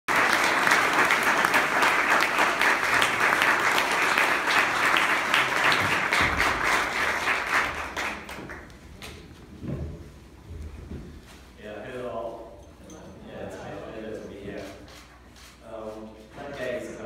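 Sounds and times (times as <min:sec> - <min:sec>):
audience applauding: 0:00.1 - 0:08.8.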